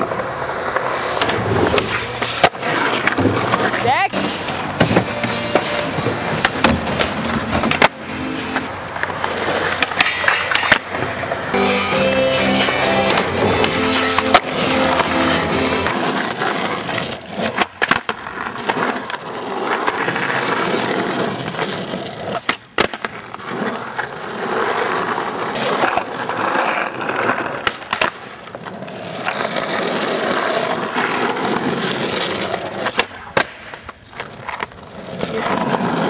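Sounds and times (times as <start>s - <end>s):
skateboard clacking on pavement: 0.0s - 11.6s, 13.1s - 36.0s
skateboard wheels rolling on asphalt: 0.0s - 36.0s.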